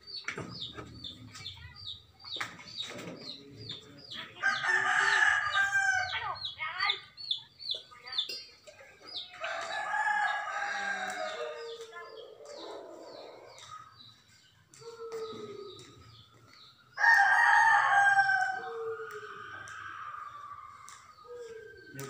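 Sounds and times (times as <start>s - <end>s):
roosters crowing: 4.2s - 6.5s, 9.2s - 14.0s, 14.8s - 22.0s
bird chirps: 6.2s - 9.9s, 11.1s - 22.0s.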